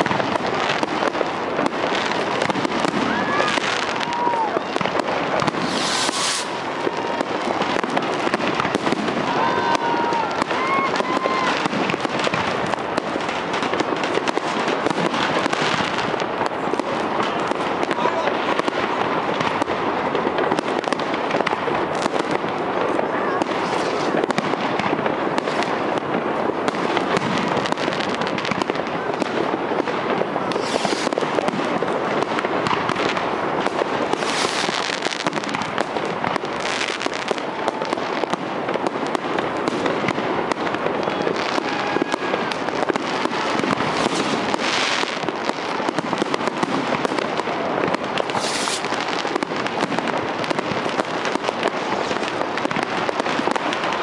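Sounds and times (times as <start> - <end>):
fireworks bursts and bangs: 0.0 - 54.0
loud crackling firework bursts: 0.0 - 54.0.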